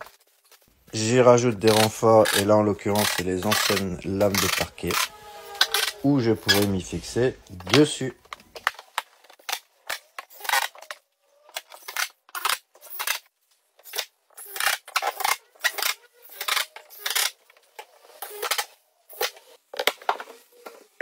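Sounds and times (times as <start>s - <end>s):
drill driving screws whirring: 1.7s - 6.7s.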